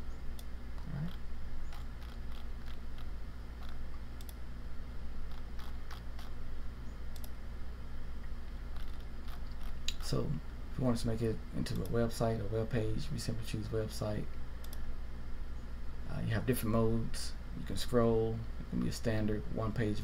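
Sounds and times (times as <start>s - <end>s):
steady low hum: 0.0s - 20.0s
computer mouse clicks: 0.3s - 4.4s, 5.3s - 6.3s, 7.1s - 7.4s, 8.7s - 10.0s, 11.7s - 12.0s, 14.6s - 14.8s.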